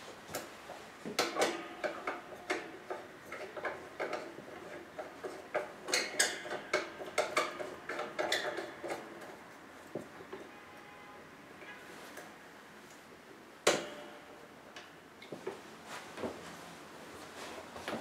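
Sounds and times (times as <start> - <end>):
metal clicks and knocks: 1.1 - 9.4.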